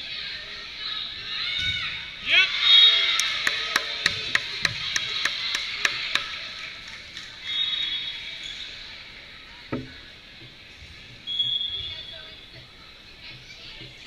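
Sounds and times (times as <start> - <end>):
crowd cheering: 1.5 - 8.4
volleyball strike: 3.1 - 6.4, 9.7 - 10.0
referee's whistle: 7.4 - 8.6, 11.2 - 12.2.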